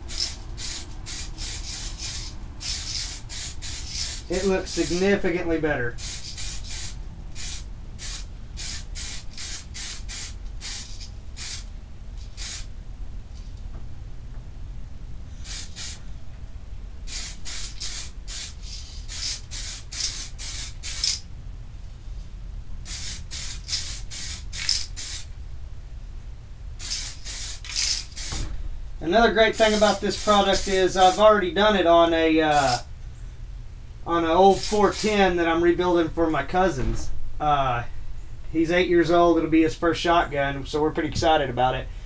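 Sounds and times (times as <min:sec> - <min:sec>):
aerosol spray hissing bursts: 0:00.0 - 0:05.2, 0:05.9 - 0:12.7, 0:15.4 - 0:16.0, 0:17.0 - 0:21.2, 0:22.8 - 0:25.3, 0:26.8 - 0:28.4, 0:29.5 - 0:31.3, 0:32.5 - 0:32.8, 0:34.5 - 0:35.2
steady low hum: 0:00.0 - 0:42.0.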